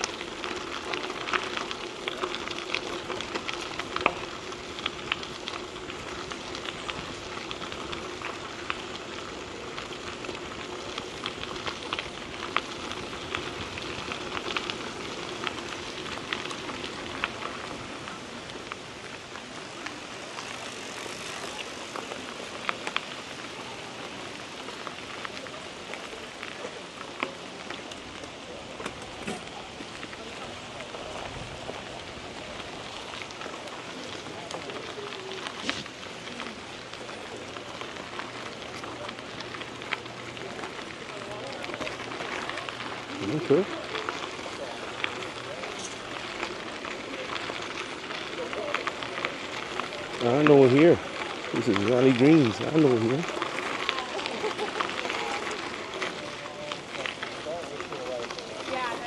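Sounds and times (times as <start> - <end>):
bike tyres crunching on gravel: 0.0 - 59.0
small clicks and rattles: 0.0 - 59.0.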